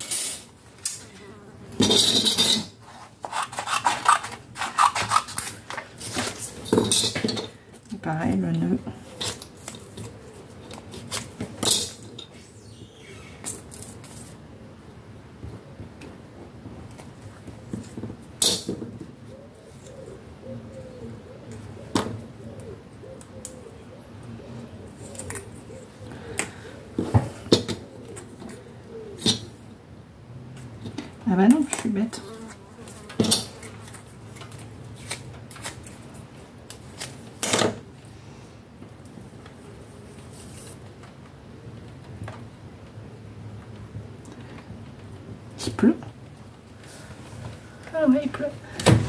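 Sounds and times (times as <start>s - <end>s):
dove cooing: 8.9s - 10.6s, 19.1s - 29.8s.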